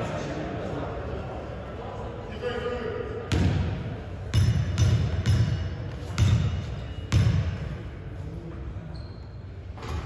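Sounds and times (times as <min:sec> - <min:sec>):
basketball bouncing on hardwood floor: 0:03.3 - 0:03.6.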